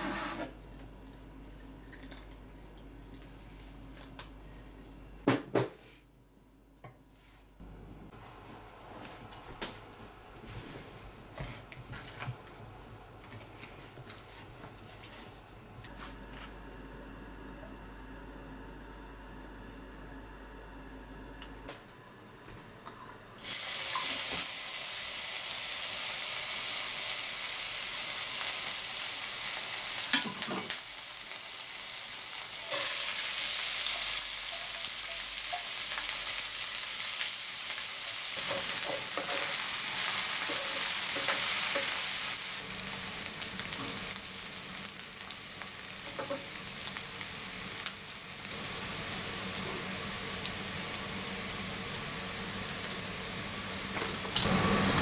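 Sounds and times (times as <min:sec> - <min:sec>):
food sizzling in oil: 0:23.4 - 0:55.0.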